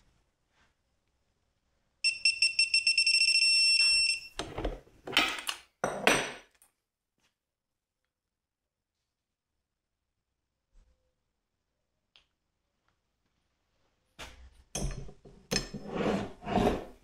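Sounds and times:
electronic beeping: 0:02.0 - 0:04.4.

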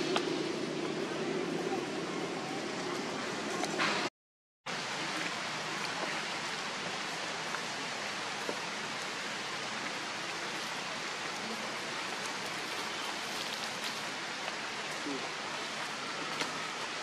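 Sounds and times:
outdoor background hiss: 0:04.7 - 0:17.0.

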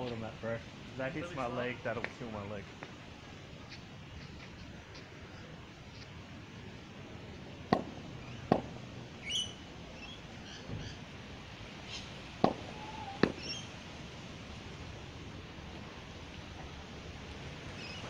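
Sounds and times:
cricket ball knocks: 0:07.7 - 0:08.7, 0:12.4 - 0:13.5
bird chirps: 0:09.2 - 0:11.0, 0:11.9 - 0:12.1, 0:12.7 - 0:13.8, 0:17.7 - 0:18.0.

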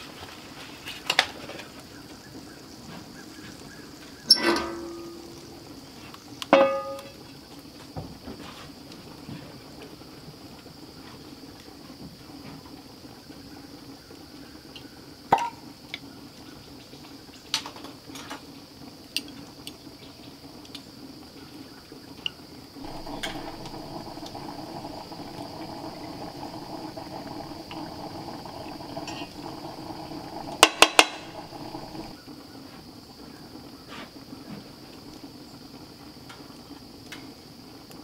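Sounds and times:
cast-iron cookware knocks: 0:06.6 - 0:07.1
steady hum: 0:22.8 - 0:32.2.

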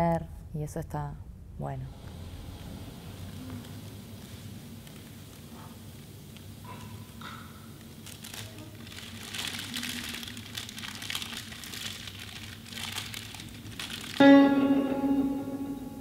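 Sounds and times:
paper crumpling: 0:03.5 - 0:05.8, 0:07.7 - 0:14.2
music: 0:14.2 - 0:16.0
plucked guitar string: 0:14.2 - 0:16.0.

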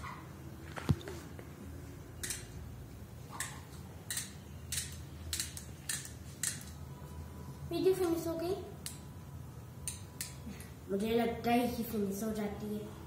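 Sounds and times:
plastic toy clicking: 0:03.4 - 0:06.7.

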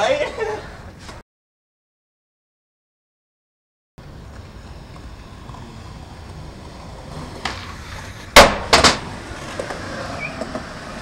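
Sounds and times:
skateboard wheels rolling on concrete: 0:04.0 - 0:11.0
skateboard landing smacks: 0:07.3 - 0:09.8
skateboard tail pop: 0:07.3 - 0:09.8.

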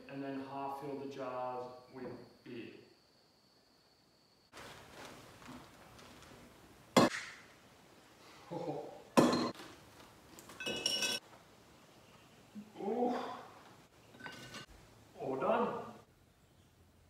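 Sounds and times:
ringing glass clink: 0:09.2 - 0:09.5, 0:10.6 - 0:11.2
glass jars clattering: 0:09.2 - 0:09.6, 0:10.5 - 0:11.2, 0:14.0 - 0:14.7.

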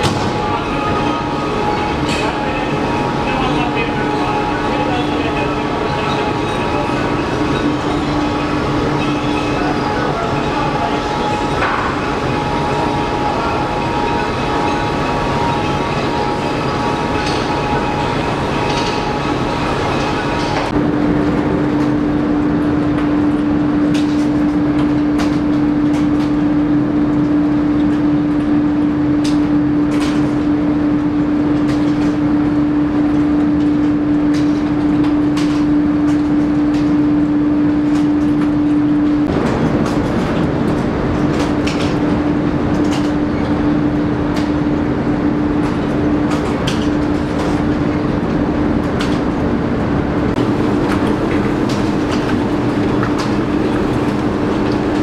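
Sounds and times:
machinery clicks and knocks: 0:37.8 - 0:49.4.

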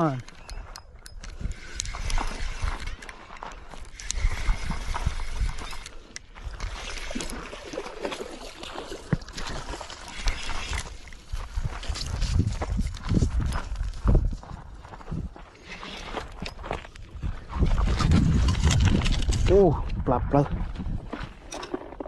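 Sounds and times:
fishing reel cranking and clicking: 0:00.0 - 0:07.5, 0:09.9 - 0:12.2
wind rumble: 0:10.1 - 0:15.4, 0:16.1 - 0:21.5
microphone handling noise: 0:17.2 - 0:21.2.

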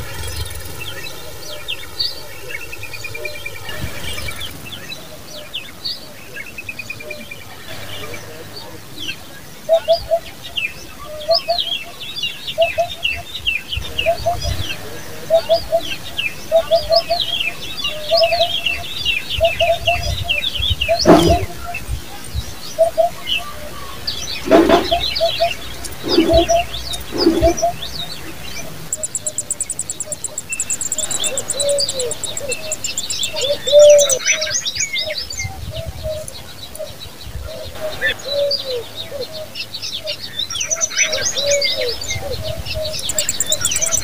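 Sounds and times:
small birds chirping: 0:00.0 - 0:44.0
low cooing note: 0:21.0 - 0:21.7, 0:24.4 - 0:28.0.

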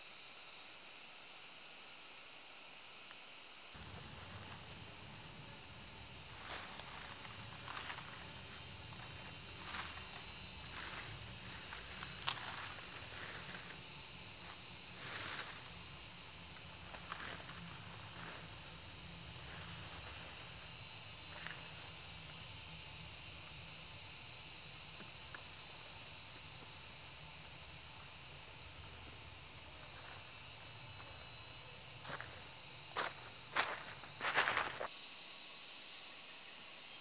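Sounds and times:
high insect drone: 0:00.0 - 0:37.0
dry leaves rustling and crackling: 0:03.8 - 0:13.9.

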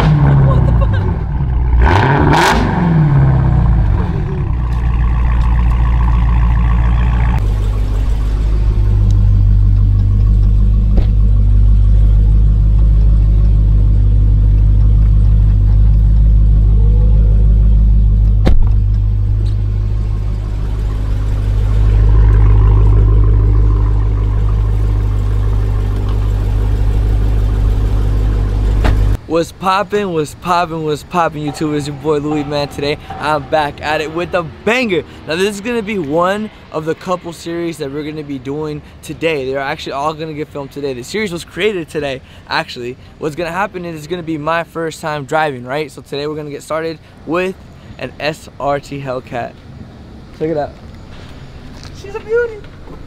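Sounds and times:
car engine idling: 0:00.0 - 0:29.3, 0:30.4 - 0:35.1.

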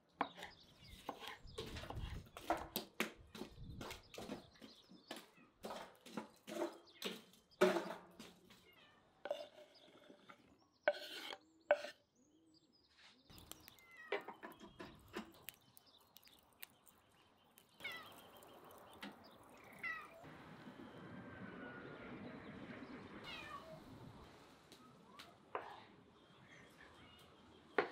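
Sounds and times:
metal poker stirring charcoal: 0:13.3 - 0:20.3.

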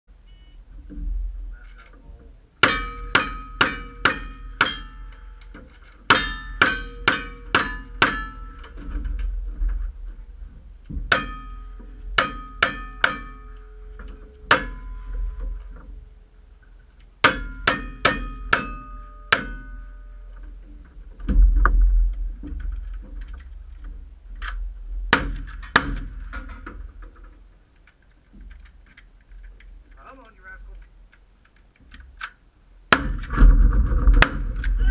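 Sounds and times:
steel target ringing: 0:02.6 - 0:05.4, 0:06.0 - 0:08.7, 0:11.1 - 0:15.6, 0:17.2 - 0:20.3.

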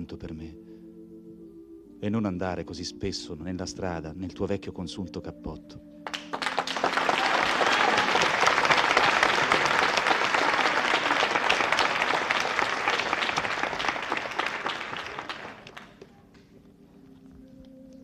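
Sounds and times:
audience applauding: 0:06.1 - 0:16.1.

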